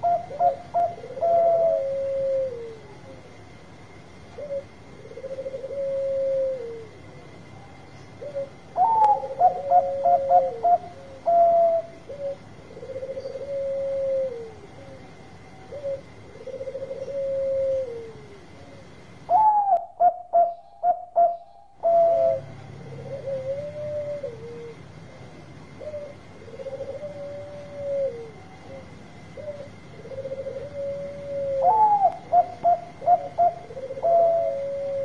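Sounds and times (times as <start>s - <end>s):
dove cooing: 0.0s - 3.4s, 4.3s - 35.0s.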